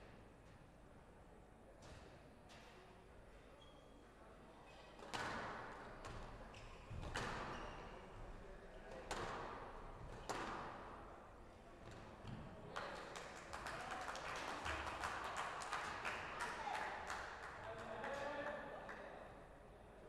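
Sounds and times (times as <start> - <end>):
squash ball hitting rackets and walls: 9.1 - 10.8.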